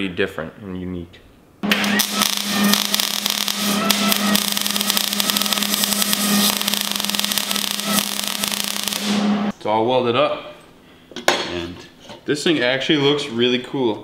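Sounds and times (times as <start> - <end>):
welding arc crackle and sizzle: 1.6 - 9.5
low hum: 1.6 - 9.6.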